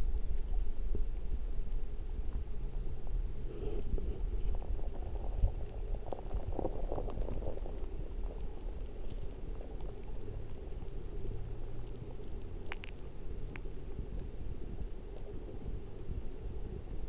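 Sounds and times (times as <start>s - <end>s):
underwater stream bubbling rush: 2.9s - 17.0s
small clicks: 12.2s - 14.3s.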